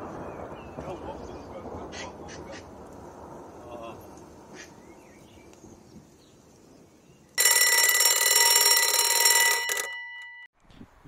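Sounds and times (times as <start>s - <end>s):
faint outdoor background: 0.0s - 11.0s
alarm clock buzzer: 7.4s - 10.5s.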